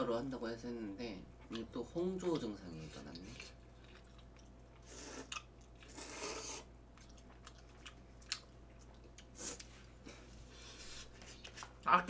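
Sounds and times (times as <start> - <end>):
chewing: 1.4 - 11.9
noodles being slurped: 4.8 - 6.7.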